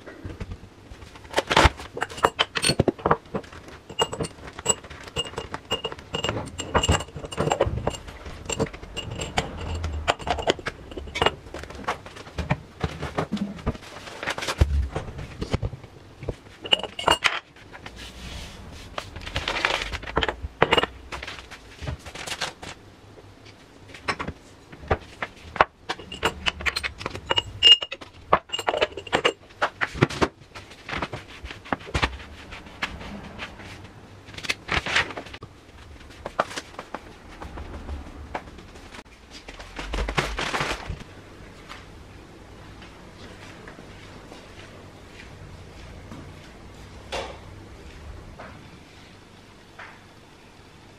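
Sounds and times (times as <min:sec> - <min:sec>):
crockery scraping: 0:01.0 - 0:15.6, 0:16.4 - 0:22.0, 0:24.1 - 0:30.0
cup and spoon clinking: 0:03.9 - 0:11.4, 0:16.6 - 0:17.4, 0:25.9 - 0:29.4.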